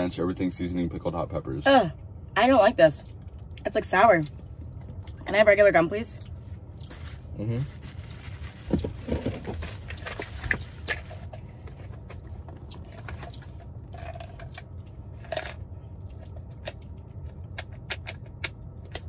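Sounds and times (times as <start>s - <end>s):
steady low hum: 0.0s - 19.0s
handling noises: 6.8s - 15.6s.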